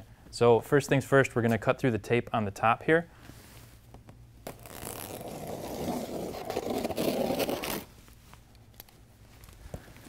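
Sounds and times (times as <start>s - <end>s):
scissor blade slicing packing tape: 4.5s - 7.9s.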